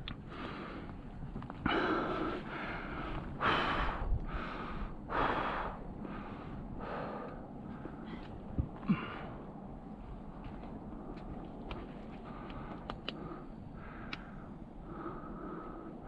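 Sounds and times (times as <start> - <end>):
heavy breathing: 1.6 - 9.6, 12.2 - 16.0.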